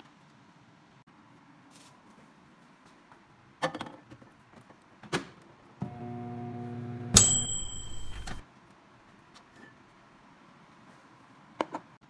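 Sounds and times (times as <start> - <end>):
high ringing tone: 5.8 - 8.4
microwave oven humming: 5.8 - 8.4.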